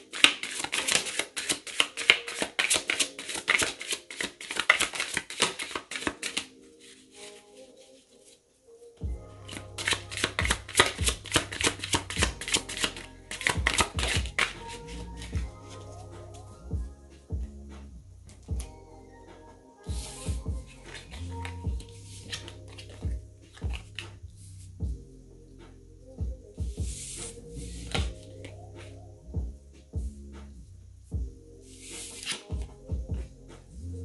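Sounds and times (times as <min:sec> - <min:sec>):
cards being shuffled: 0:00.0 - 0:08.4, 0:09.5 - 0:15.3, 0:20.0 - 0:24.2, 0:31.8 - 0:32.6
background music: 0:00.0 - 0:34.0.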